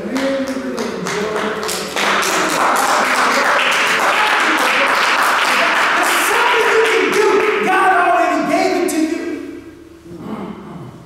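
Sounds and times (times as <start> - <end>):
crowd applauding: 0.0 - 8.2
voices: 0.0 - 11.0.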